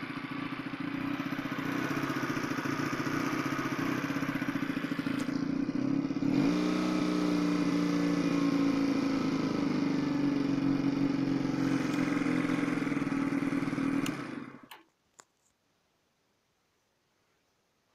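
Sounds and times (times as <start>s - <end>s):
motorcycle engine idling: 0.0s - 14.8s
ignition click: 14.0s - 14.9s.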